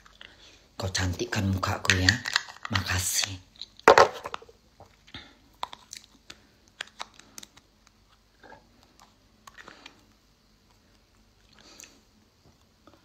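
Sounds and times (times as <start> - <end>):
knock on plastic jar: 3.9 - 4.4.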